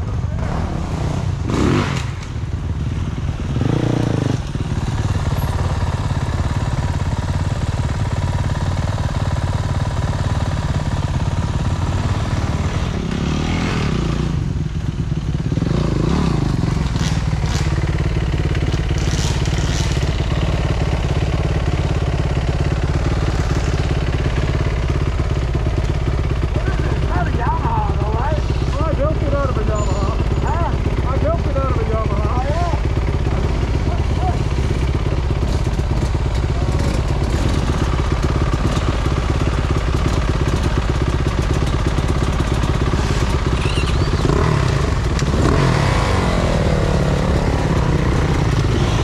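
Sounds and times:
dirt bike engine revving: 0:00.4 - 0:02.3, 0:03.4 - 0:05.6, 0:11.8 - 0:14.6, 0:15.4 - 0:24.9, 0:26.5 - 0:49.0.

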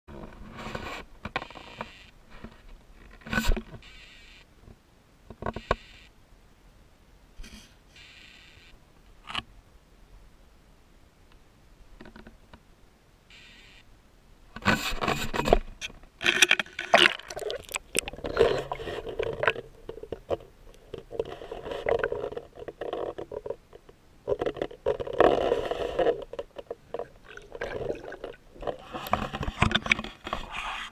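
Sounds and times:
water sloshing underwater: 0:16.2 - 0:30.9.

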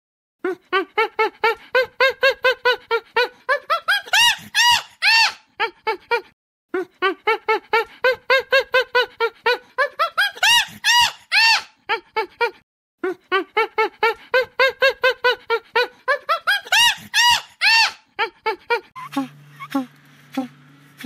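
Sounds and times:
chimpanzee hooting: 0:03.7 - 0:05.4, 0:07.0 - 0:11.7, 0:13.3 - 0:20.0.

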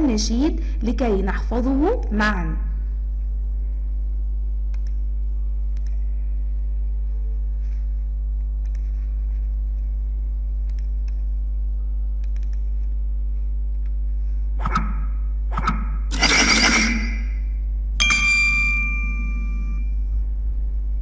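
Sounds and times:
low electrical mains hum: 0:00.0 - 0:21.0
faint mouse clicks: 0:04.7 - 0:05.0, 0:05.7 - 0:06.0, 0:08.6 - 0:08.9, 0:10.6 - 0:11.3, 0:12.2 - 0:12.9.

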